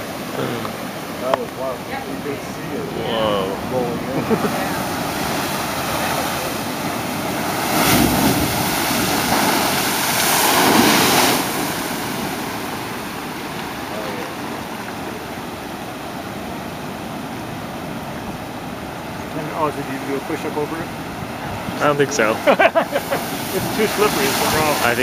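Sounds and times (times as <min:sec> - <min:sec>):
surf crashing over rocks: 0:00.0 - 0:25.0
water draining with rushing hiss: 0:23.3 - 0:25.0.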